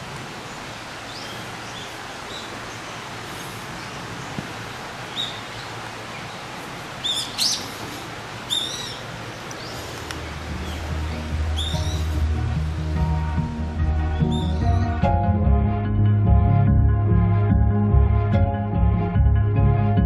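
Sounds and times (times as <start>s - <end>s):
steady background hiss: 0.0s - 15.0s
wild birds chirping: 0.0s - 15.0s.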